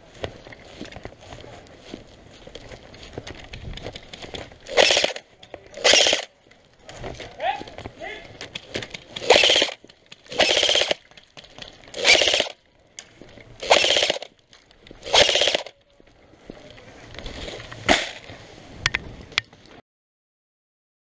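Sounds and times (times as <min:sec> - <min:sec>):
rustling: 0:00.0 - 0:19.8
airsoft gun bursts: 0:04.7 - 0:05.2, 0:05.8 - 0:06.3, 0:09.2 - 0:11.0, 0:11.9 - 0:12.6, 0:13.6 - 0:14.3, 0:15.0 - 0:15.8.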